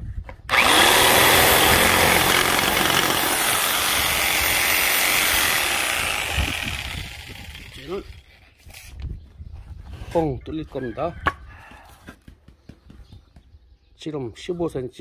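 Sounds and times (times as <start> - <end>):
jigsaw cutting wood: 0.5 - 8.3.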